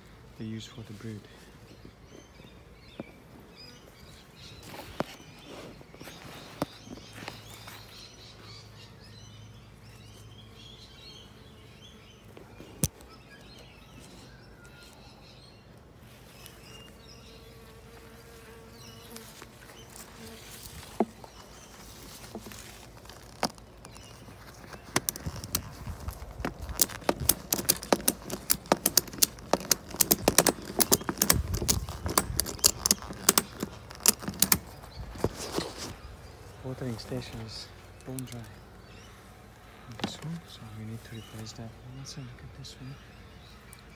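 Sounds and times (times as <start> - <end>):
honeybees buzzing: 16.0 - 43.9
dense irregular crackling and clicking: 23.0 - 34.7.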